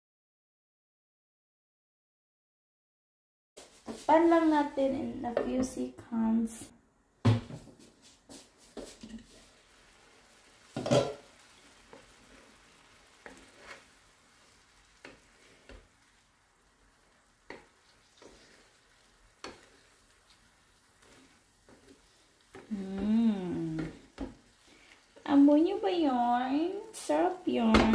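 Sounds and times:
shrimp sizzling in a pan: 7.8 - 27.9
glass lid clattering: 10.8 - 11.2.

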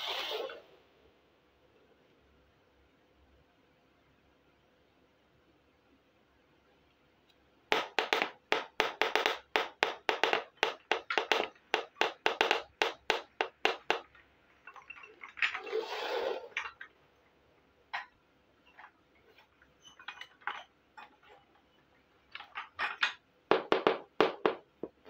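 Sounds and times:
plastic pot scraping on floor: 14.8 - 16.9.

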